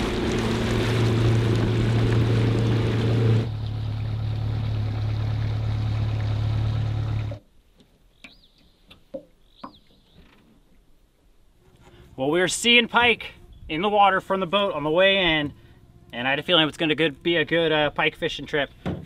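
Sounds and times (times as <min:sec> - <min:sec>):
boat engine humming: 0:00.0 - 0:07.4, 0:11.5 - 0:19.0.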